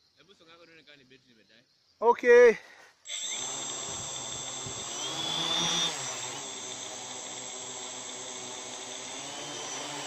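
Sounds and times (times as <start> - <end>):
drone propellers whirring: 3.1 - 10.0.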